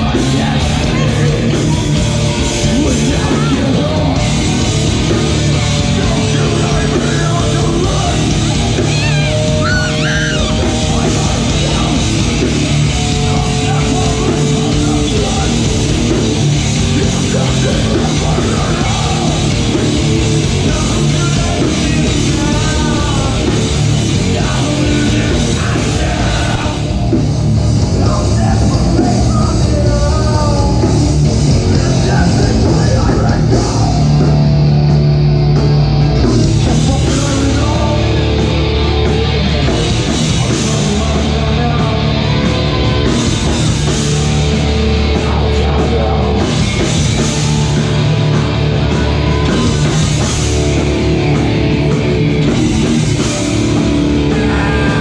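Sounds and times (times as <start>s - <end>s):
metalcore band playing live: 0.0s - 55.0s.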